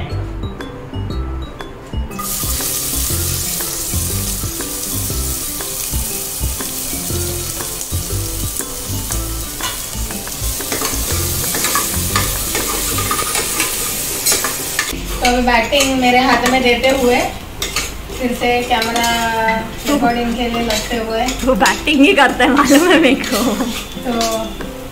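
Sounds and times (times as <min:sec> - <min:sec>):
onions sizzling in oil: 0:02.2 - 0:24.9
spoon scraping a pot: 0:10.7 - 0:24.6.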